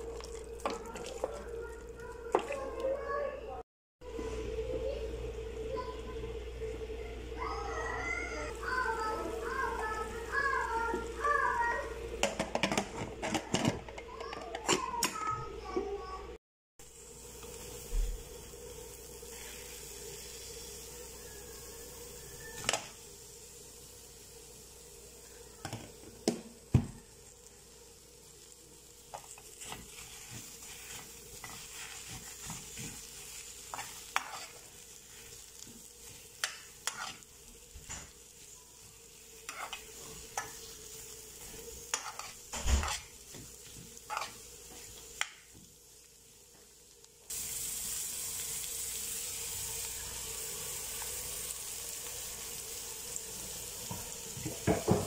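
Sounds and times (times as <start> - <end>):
onions sizzling in a pan: 0.0 - 15.8, 16.8 - 55.0
metal spoon scraping a pan: 29.1 - 35.4, 36.0 - 37.3, 39.3 - 45.0.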